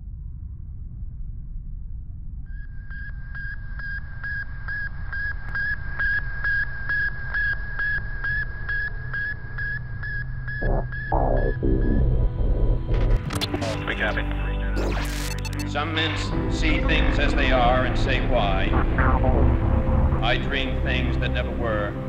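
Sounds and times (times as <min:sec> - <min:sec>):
low rumbling drone: 0:00.0 - 0:03.2, 0:10.5 - 0:14.8, 0:16.3 - 0:22.0
pulsing high electronic tone: 0:10.5 - 0:15.7, 0:16.3 - 0:21.6
short falling electronic sound: 0:10.6 - 0:13.2.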